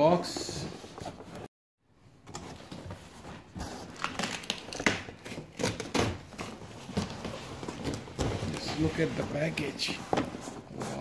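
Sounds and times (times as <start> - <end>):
cardboard flaps scraping and rustling: 6.3 - 11.0.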